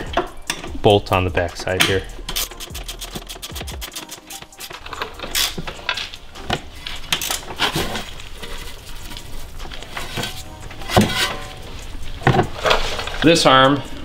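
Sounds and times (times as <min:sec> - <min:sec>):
ratchet clicking: 0:02.2 - 0:06.1.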